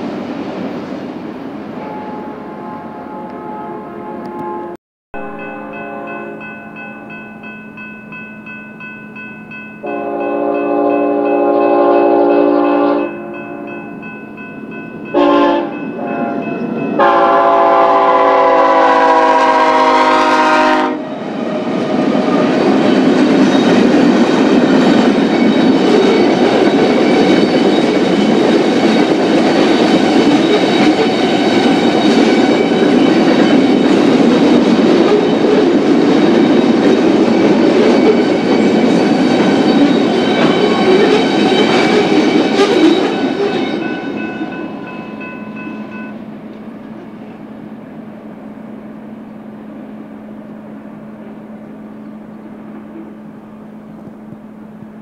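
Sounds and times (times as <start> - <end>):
train wheels rumbling on rails: 0.0 - 3.5, 5.2 - 55.0
locomotive air horn blasts: 1.8 - 6.5, 9.8 - 13.7, 15.1 - 21.1.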